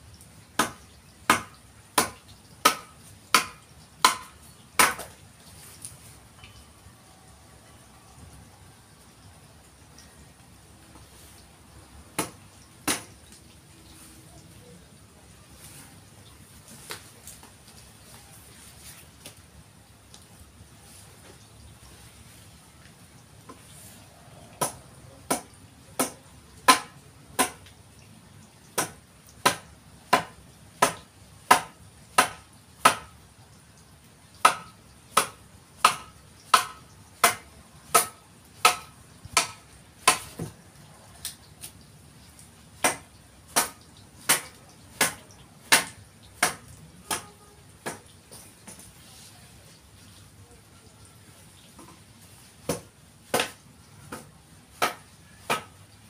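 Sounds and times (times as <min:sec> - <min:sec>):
faint steady hiss: 0:00.0 - 0:56.0
hand tool striking wood: 0:00.6 - 0:05.1, 0:12.2 - 0:13.1, 0:28.8 - 0:33.1, 0:34.4 - 0:40.5.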